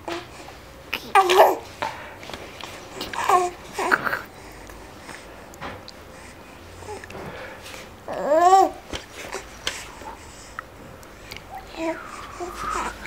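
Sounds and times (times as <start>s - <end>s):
baby cooing: 11.5s - 13.0s.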